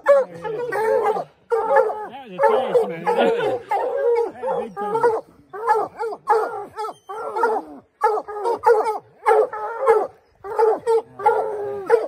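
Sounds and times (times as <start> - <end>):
hounds barking excitedly: 0.0 - 12.0.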